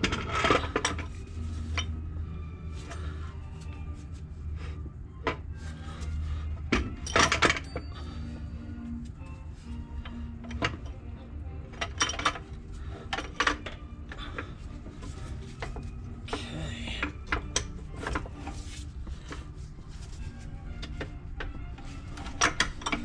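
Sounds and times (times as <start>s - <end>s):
scraping rub: 0.5s - 4.4s, 17.1s - 23.0s
metallic clinks and knocks: 6.6s - 11.0s, 11.7s - 13.8s, 20.2s - 23.0s.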